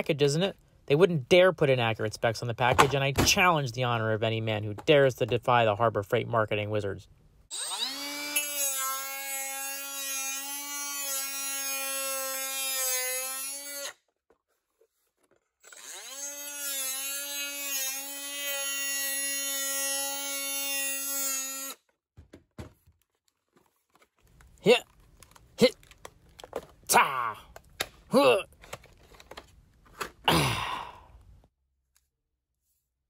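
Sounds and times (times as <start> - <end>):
power tool motor whining: 7.5 - 9.0, 15.6 - 21.8.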